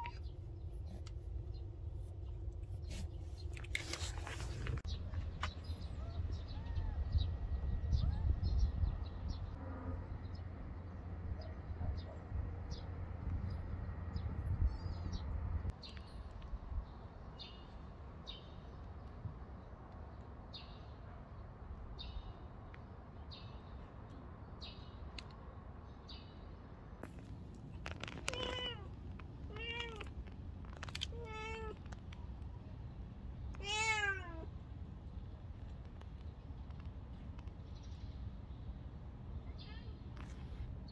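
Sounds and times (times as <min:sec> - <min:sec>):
cat meowing: 0:28.1 - 0:30.2, 0:30.8 - 0:31.9, 0:33.5 - 0:34.5.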